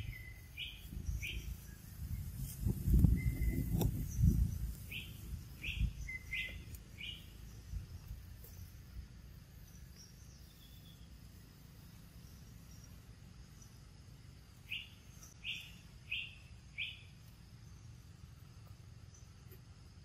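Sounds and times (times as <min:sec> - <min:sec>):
faint outdoor background: 0:00.0 - 0:20.0
low rumbling bumps: 0:00.8 - 0:06.7.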